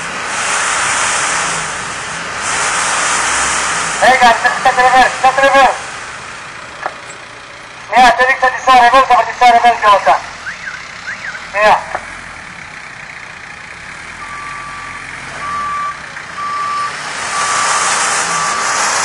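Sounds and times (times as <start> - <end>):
rushing vehicle noise: 0.0 - 19.0
reversing alarm beeps: 10.4 - 11.5, 14.2 - 18.8.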